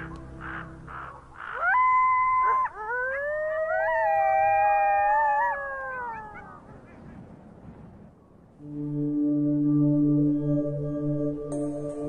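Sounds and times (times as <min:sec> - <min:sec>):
coyotes howling: 0:00.1 - 0:06.9.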